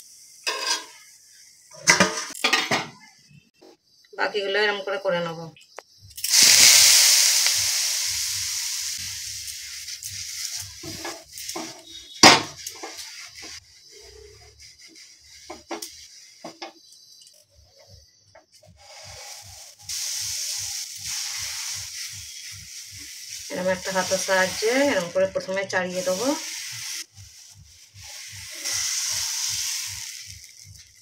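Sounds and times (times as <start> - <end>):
water hissing on hot griddle: 0.0 - 2.0, 6.2 - 17.0, 18.5 - 31.0
batter sizzling on griddle: 6.0 - 31.0
cloth rubbing griddle: 9.6 - 16.6, 18.7 - 31.0.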